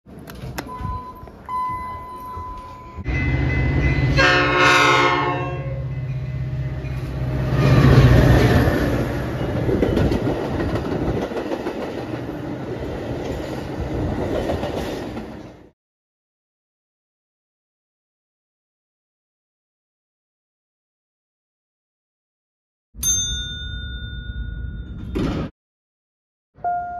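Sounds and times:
train rumbling: 0.1 - 15.7
elevator chime: 0.6 - 4.2, 23.0 - 25.5, 26.6 - 26.9
locomotive horn: 3.0 - 8.1.

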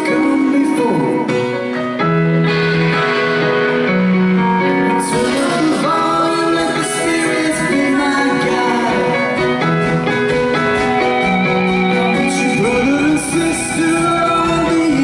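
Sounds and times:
person singing: 0.0 - 1.6, 4.7 - 9.9, 10.8 - 15.0
live rock band playing: 0.0 - 15.0.

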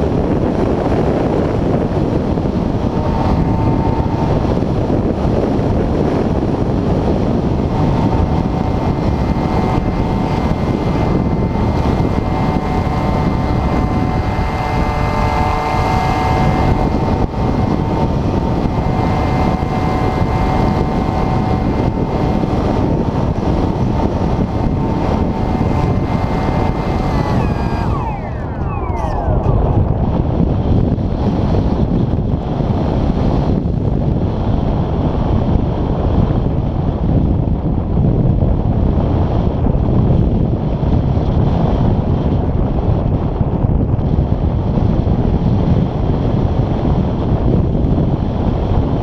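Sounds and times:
wind buffeting microphone: 0.0 - 49.0
electric motor whine: 0.4 - 32.3.

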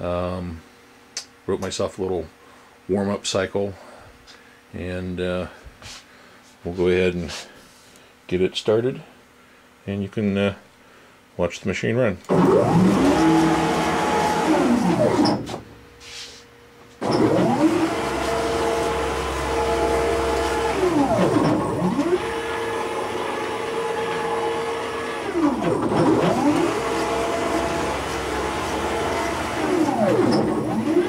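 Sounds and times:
stepper motors whining: 12.3 - 15.6, 17.0 - 31.0.

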